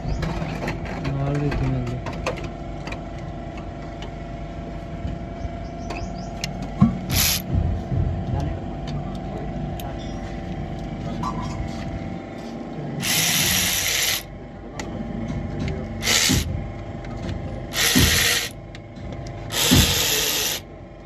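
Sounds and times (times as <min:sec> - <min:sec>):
electric ratchet whirring: 0:07.1 - 0:07.5, 0:13.0 - 0:14.3, 0:16.0 - 0:16.5, 0:17.7 - 0:18.6, 0:19.5 - 0:20.7.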